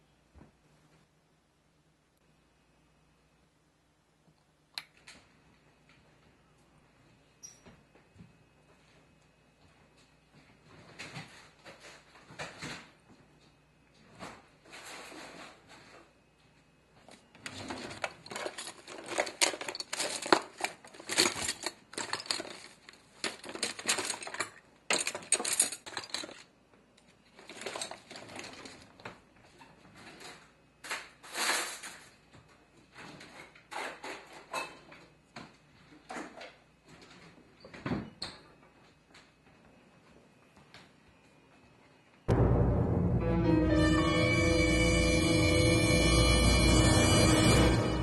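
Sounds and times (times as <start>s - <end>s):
rummaging through kitchen drawer: 17.4s - 26.4s, 27.4s - 29.0s
low thump: 42.3s - 45.5s.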